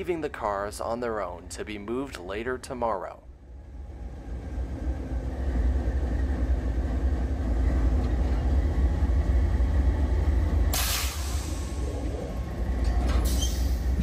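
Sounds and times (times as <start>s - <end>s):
diesel locomotive engine rumbling: 0.0s - 14.0s
air hose blast: 10.8s - 11.6s.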